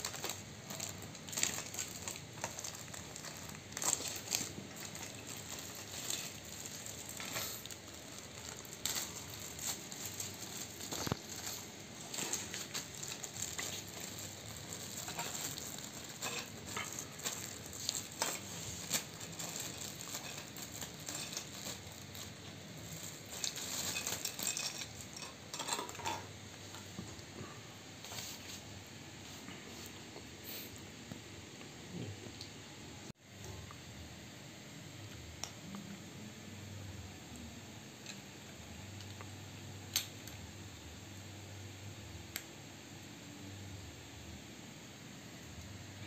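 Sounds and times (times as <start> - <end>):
plastic packaging crinkling: 0.0 - 26.2.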